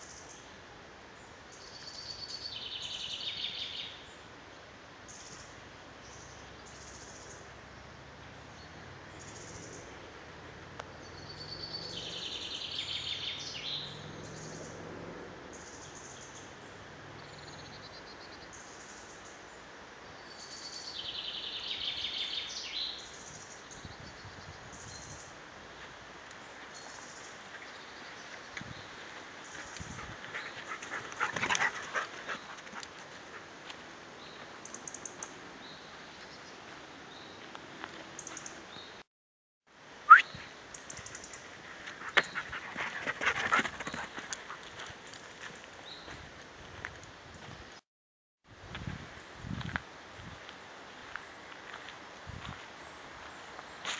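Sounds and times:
steady background hiss: 0.0 - 14.4
footsteps crunching on forest floor: 25.7 - 30.7, 32.3 - 34.6, 44.1 - 47.6, 48.7 - 53.9.

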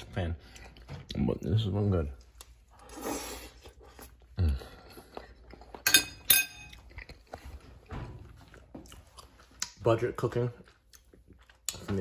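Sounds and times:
fork clinking on ceramic plate: 5.9 - 6.8.

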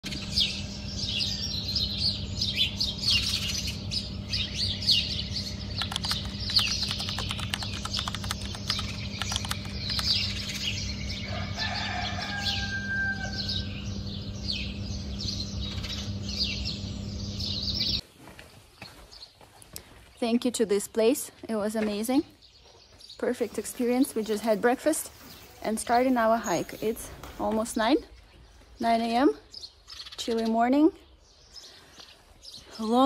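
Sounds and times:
steady low hum: 0.0 - 18.0
songbirds chirping and singing: 0.0 - 33.0
rooster crowing: 11.1 - 14.0.

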